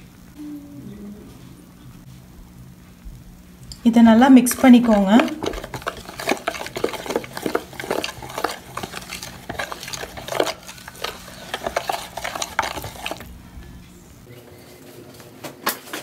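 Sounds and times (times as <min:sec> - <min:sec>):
spoon scraping plastic container: 0:04.1 - 0:13.4.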